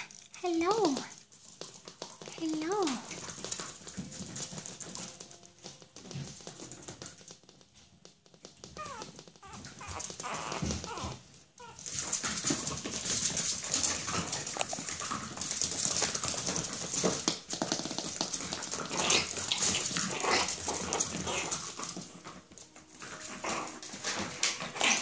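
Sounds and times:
puppies whimpering and yipping: 8.6 - 13.1, 18.9 - 25.0.

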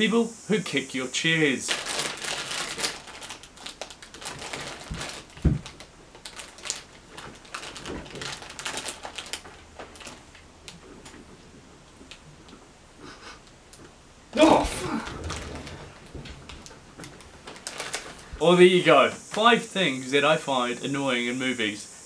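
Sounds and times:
chair knocks and rattles: 5.0 - 5.8, 15.0 - 17.4
heavy thump: 5.4 - 5.7.

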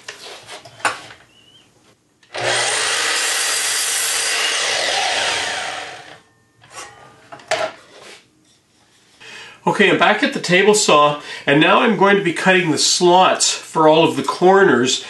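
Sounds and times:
miter saw cutting wood: 2.3 - 6.2.

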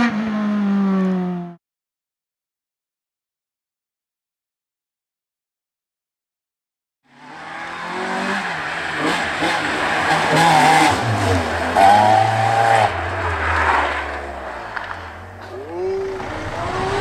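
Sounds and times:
rally car engine revving past: 7.1 - 17.0.

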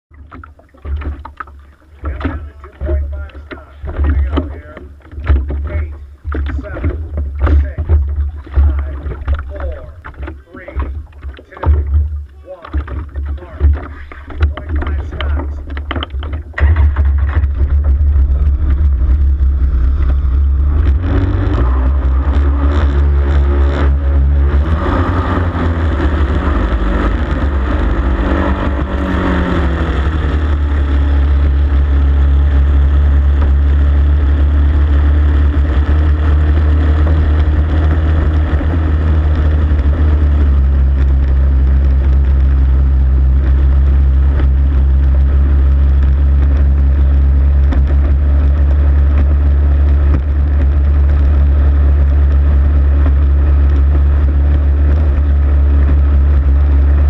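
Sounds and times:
wind and water rush: 0.1 - 35.4
boat engine running hard: 0.1 - 57.0.

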